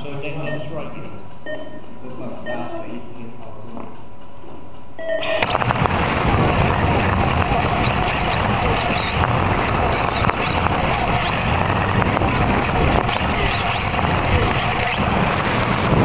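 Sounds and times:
electric motor whine: 5.2s - 16.0s
rushing running gear noise: 5.2s - 16.0s.

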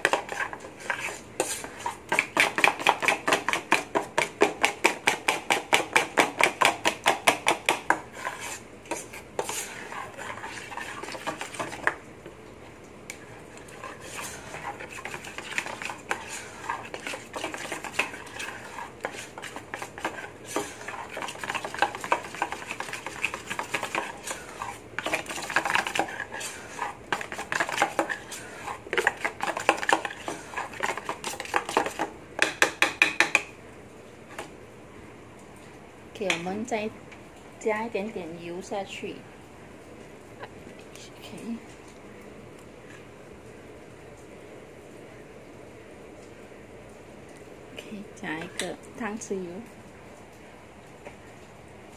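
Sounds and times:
spoon scraping bowl: 0.0s - 12.0s, 13.1s - 32.1s.

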